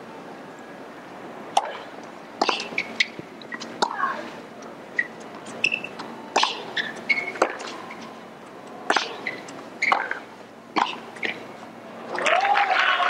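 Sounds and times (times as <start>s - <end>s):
racket striking tennis ball: 1.5s - 4.1s, 5.0s - 7.7s, 8.8s - 11.4s
tennis ball bouncing: 1.5s - 4.1s, 5.0s - 8.0s, 8.8s - 11.4s
shoe squeaks: 2.5s - 3.7s, 5.0s - 8.2s, 8.9s - 10.2s.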